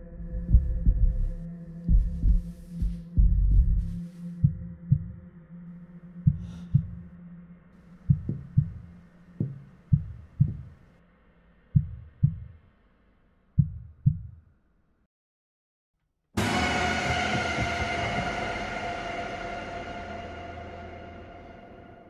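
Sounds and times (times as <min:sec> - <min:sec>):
heartbeat thumps: 0:00.2 - 0:05.2, 0:06.2 - 0:07.1, 0:08.0 - 0:10.8, 0:11.8 - 0:12.6, 0:13.6 - 0:14.4.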